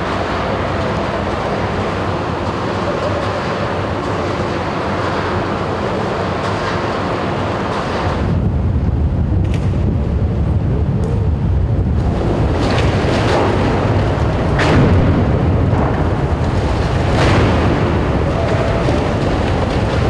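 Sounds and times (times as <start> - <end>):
boring machine grinding rumble: 0.0 - 20.0
rock cracking: 12.1 - 20.0.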